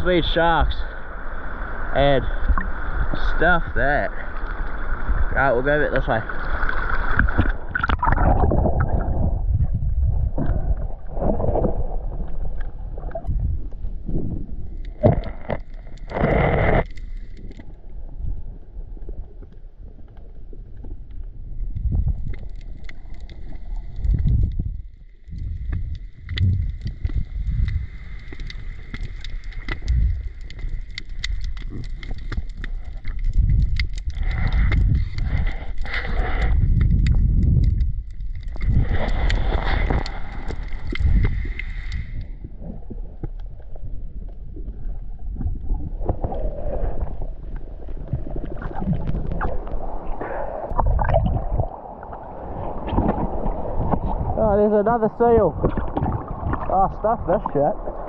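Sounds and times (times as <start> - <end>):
muffled underwater rumble: 0.0 - 58.0
water gurgles: 0.0 - 58.0
water splashing: 1.4 - 13.4, 21.6 - 43.2, 45.2 - 58.0.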